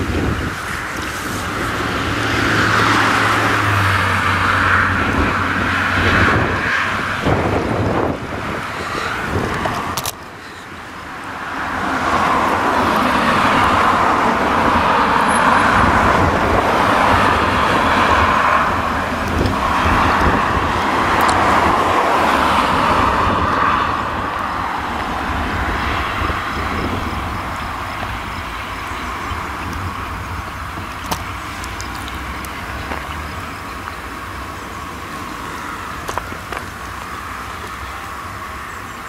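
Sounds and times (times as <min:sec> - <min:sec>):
tractor engine rumble: 0:00.0 - 0:39.0
hay rake rushing hiss: 0:00.6 - 0:02.2.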